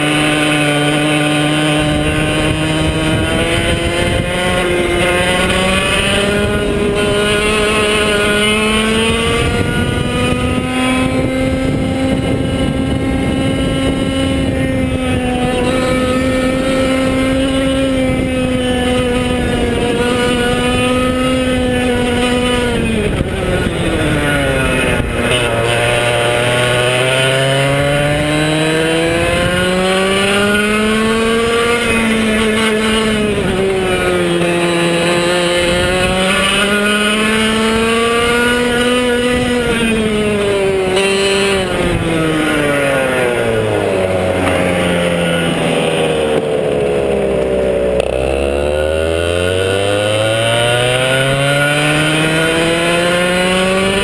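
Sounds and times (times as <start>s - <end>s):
kart engine revving: 0.0s - 54.0s.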